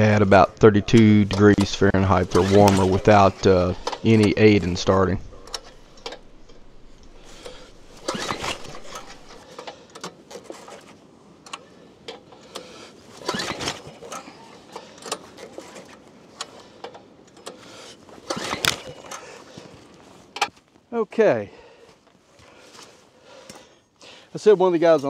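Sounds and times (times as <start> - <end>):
engine recoil starter pulled: 0.9 - 10.9, 11.5 - 19.4.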